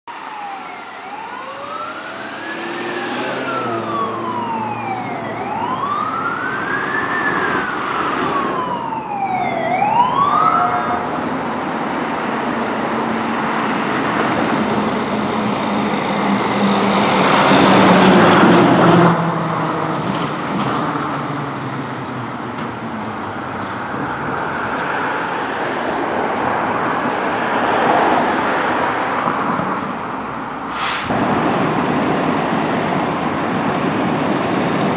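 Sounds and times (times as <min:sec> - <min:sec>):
road noise: 0:00.0 - 0:34.9
heavy truck engine: 0:00.1 - 0:09.2, 0:29.6 - 0:34.9
fire truck siren wailing: 0:00.1 - 0:12.2.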